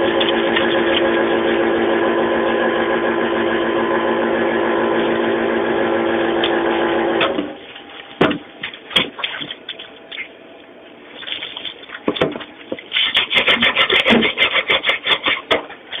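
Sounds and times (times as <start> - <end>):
food machine motor humming: 0.0 - 7.8
sharp knocks: 8.2 - 9.5.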